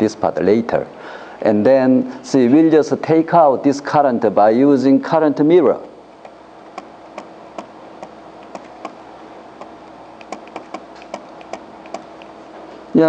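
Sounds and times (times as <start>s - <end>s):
faint steady hum: 0.0s - 13.0s
stylus tapping on tablet screen: 6.7s - 9.0s, 9.6s - 12.3s.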